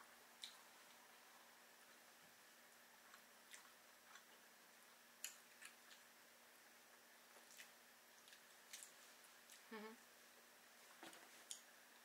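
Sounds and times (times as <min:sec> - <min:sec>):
faint room hum: 0:00.0 - 0:12.0
wet eating sounds: 0:07.4 - 0:09.7.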